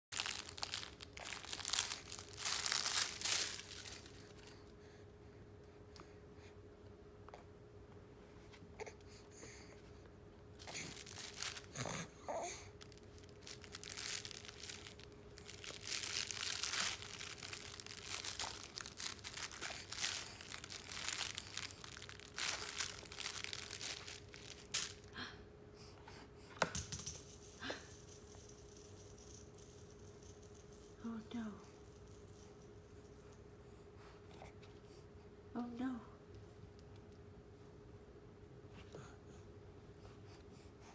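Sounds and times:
fabric book crinkling: 0.1s - 4.5s, 10.6s - 12.0s, 12.8s - 25.1s
faint steady hum: 0.2s - 40.9s.

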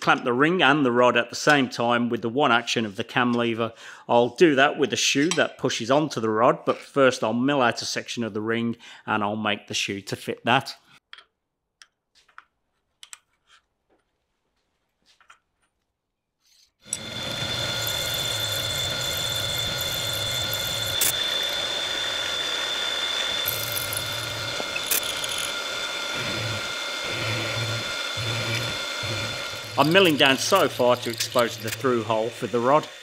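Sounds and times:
milling machine cutting metal: 16.8s - 33.0s.

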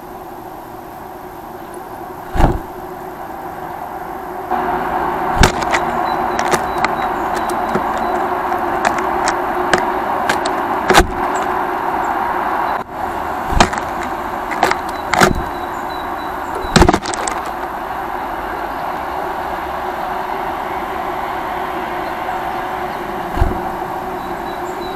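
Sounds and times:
urban background noise: 0.0s - 24.9s
sharp knocks: 2.3s - 2.7s, 5.4s - 11.5s, 13.5s - 15.5s, 16.5s - 17.6s, 23.3s - 23.8s.

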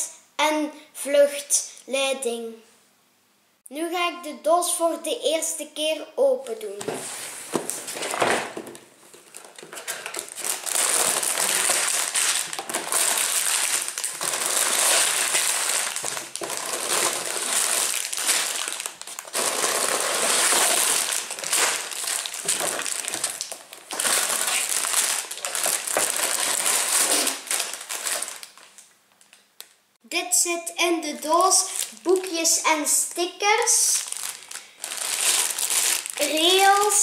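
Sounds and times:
plastic bags crinkling: 7.6s - 29.8s, 31.4s - 32.6s, 33.7s - 37.0s.

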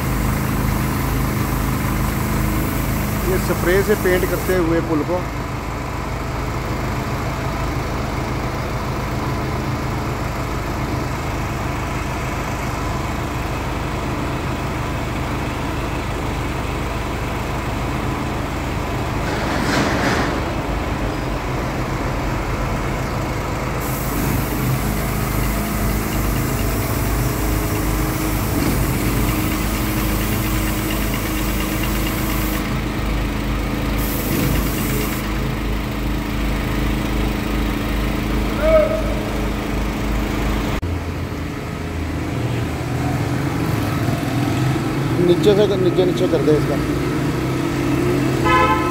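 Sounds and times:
site machinery engines running: 0.0s - 48.9s
high hiss: 2.4s - 4.6s.

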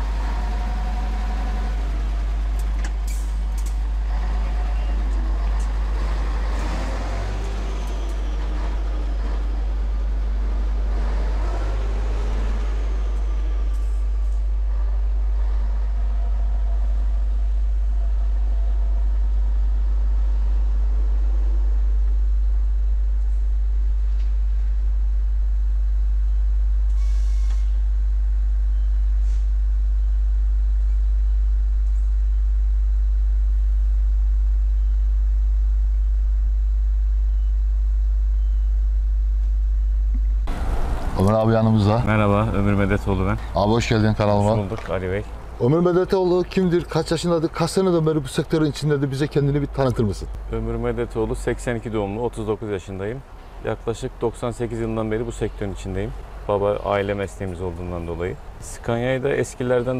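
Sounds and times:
truck diesel engine: 0.0s - 25.2s, 40.4s - 59.9s
deep rumble: 0.0s - 47.4s.

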